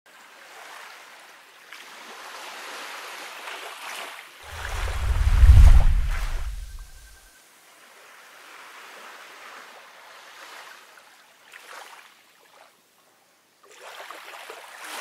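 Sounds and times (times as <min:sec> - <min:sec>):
wind: 0:00.1 - 0:15.0
deep buffeting rumble: 0:04.5 - 0:07.0
surf: 0:04.5 - 0:07.0.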